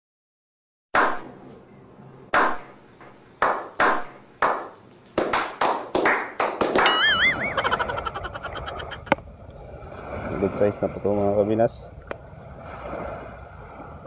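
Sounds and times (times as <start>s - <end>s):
men clapping: 4.4s - 6.9s
short warbling tone: 6.9s - 9.1s.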